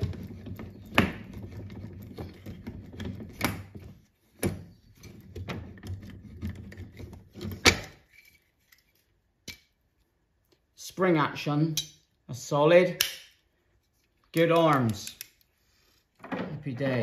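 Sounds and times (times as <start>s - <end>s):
hand tool metallic clicks and knocks: 14.4s - 15.5s.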